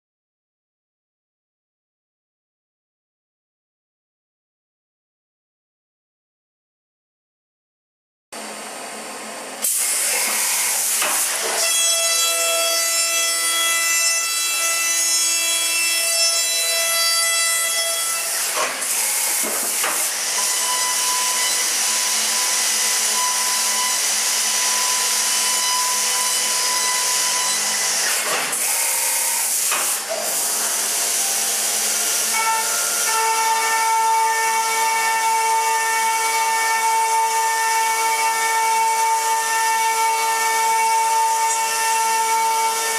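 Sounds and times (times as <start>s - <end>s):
cutting and coolant spray hiss: 9.6s - 11.6s, 18.4s - 20.6s, 27.8s - 33.1s
high spindle whine: 20.3s - 28.0s.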